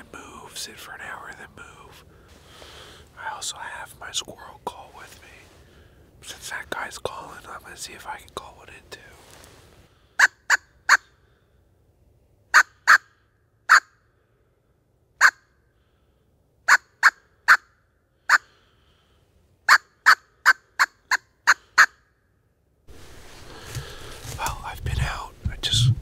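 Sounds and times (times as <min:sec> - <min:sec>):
squirrel call barks: 0:12.5 - 0:14.0, 0:15.2 - 0:15.4, 0:16.7 - 0:17.7, 0:18.3 - 0:18.5, 0:19.7 - 0:22.0.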